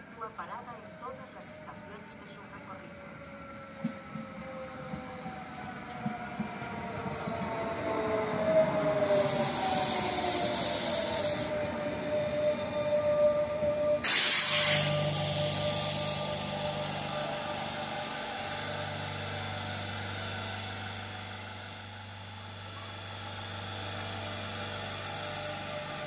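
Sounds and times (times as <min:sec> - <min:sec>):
low hum of train equipment: 0:00.0 - 0:26.0
train whine: 0:00.0 - 0:26.0
loud hiss of air: 0:09.1 - 0:11.6, 0:14.0 - 0:16.8.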